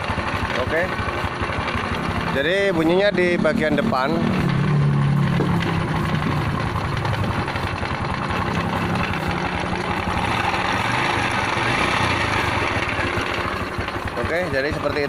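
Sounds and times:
motorcycle engine idling: 0.0s - 15.0s
ticking mechanical clatter: 0.0s - 15.0s.

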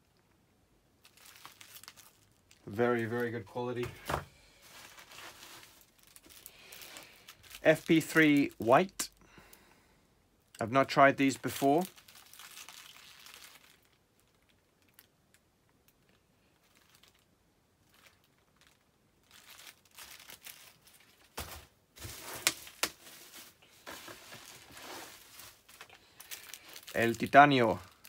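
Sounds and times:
bubble wrap crackles: 1.0s - 3.8s, 4.5s - 9.2s, 10.8s - 28.0s
bubble wrap and cardboard rustling: 1.0s - 9.1s, 10.8s - 15.2s, 15.9s - 28.0s
faint cardboard handling: 21.1s - 26.0s.

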